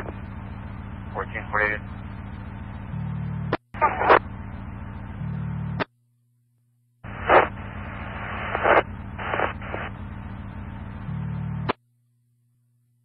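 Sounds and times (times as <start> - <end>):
garbled radio voice: 1.1 - 1.9, 3.8 - 4.2
radio static hiss: 3.8 - 4.2, 7.0 - 10.0
radio squelch tail: 3.8 - 4.3, 7.1 - 10.0
radio click: 7.2 - 7.5.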